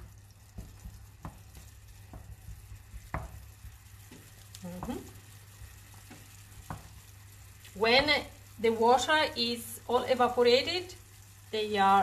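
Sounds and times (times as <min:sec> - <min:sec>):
faint sizzle: 0:00.0 - 0:12.0.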